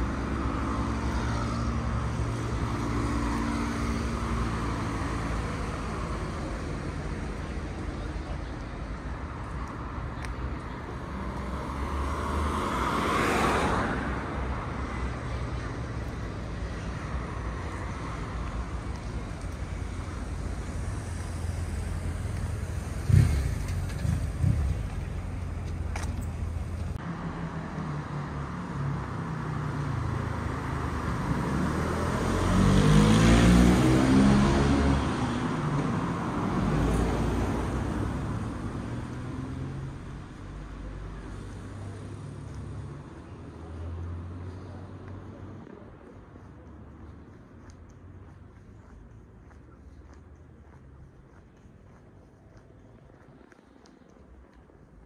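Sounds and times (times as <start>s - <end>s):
low traffic rumble: 0.0s - 55.0s
vehicle passing: 10.8s - 45.8s.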